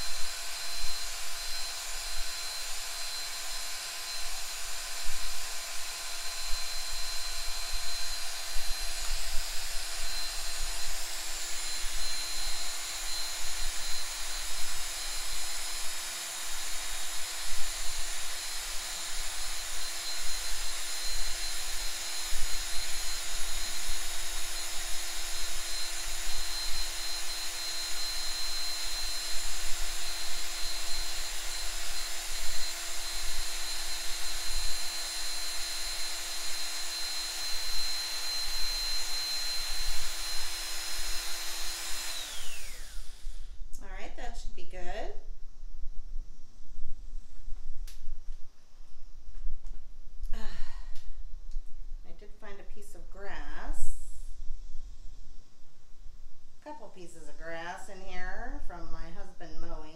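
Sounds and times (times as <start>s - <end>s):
drill whine: 0.0s - 44.0s, 50.3s - 51.0s.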